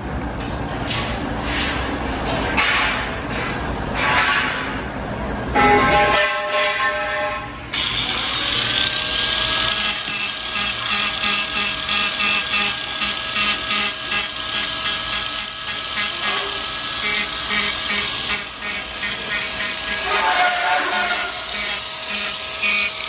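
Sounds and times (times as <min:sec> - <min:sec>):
angle grinder whine: 0:07.7 - 0:23.0
sanding disc chatter on plastic: 0:07.8 - 0:23.0.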